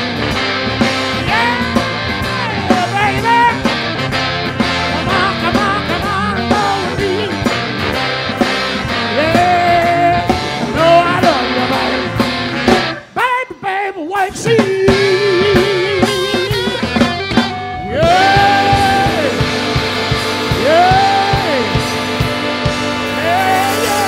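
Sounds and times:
electric guitar: 0.0 - 13.2, 14.3 - 24.0
blues band playing: 0.0 - 24.0
drum kit: 0.0 - 24.0
wavering lead line: 17.6 - 24.0.

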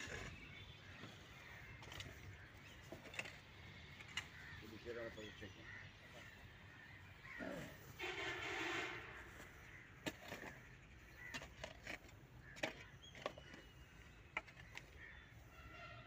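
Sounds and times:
hoe chopping stony soil: 9.9 - 13.7.

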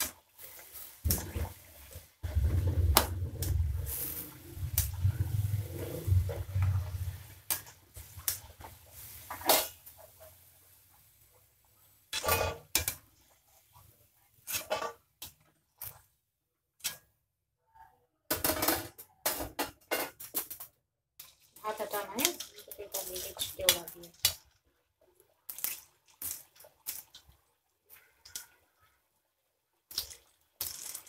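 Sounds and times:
food sizzling in hot oil: 0.0 - 16.0, 21.2 - 24.6, 25.3 - 28.5, 29.8 - 31.0.

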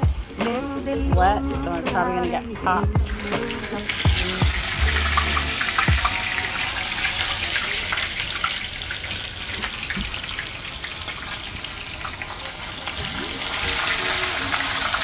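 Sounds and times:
fish sizzling in hot oil: 3.2 - 15.0.

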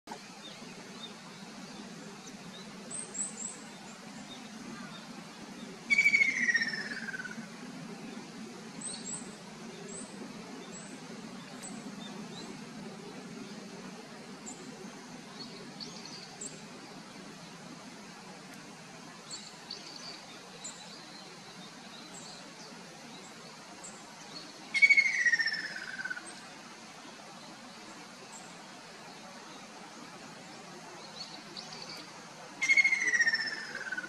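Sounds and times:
faint high bird chirps: 31.1 - 34.0.

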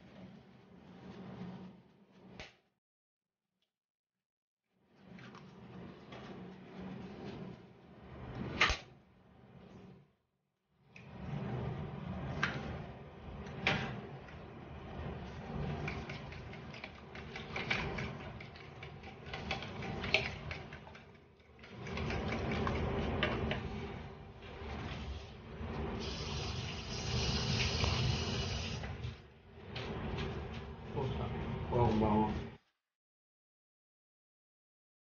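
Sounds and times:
fork beating eggs in a bowl: 15.6 - 23.7
steady hiss: 25.9 - 29.0.

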